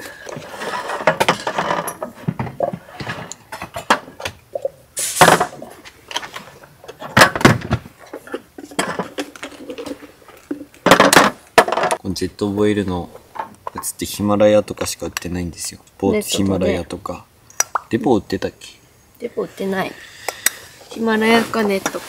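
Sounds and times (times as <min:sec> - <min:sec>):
cookware clinking and knocking: 0:08.2 - 0:09.9
soft rustle: 0:20.8 - 0:22.0.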